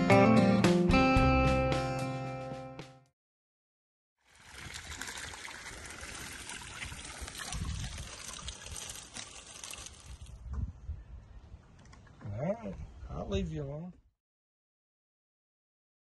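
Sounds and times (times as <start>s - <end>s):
water streaming and dripping off net: 4.2s - 10.4s.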